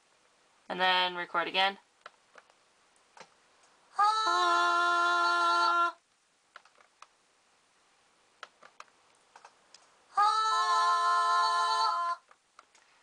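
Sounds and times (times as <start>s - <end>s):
faint computer clicks: 6.5s - 7.2s.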